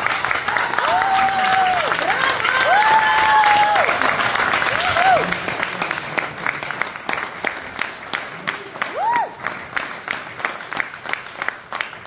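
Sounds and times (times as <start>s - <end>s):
audience applauding: 0.0s - 12.0s.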